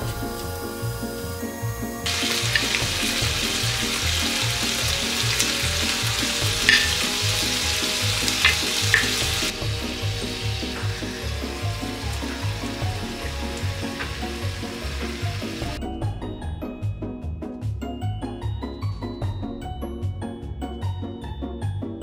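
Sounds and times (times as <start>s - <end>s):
meat sizzling in a frying pan: 0.0s - 15.8s
background music with steady beat: 0.0s - 22.0s.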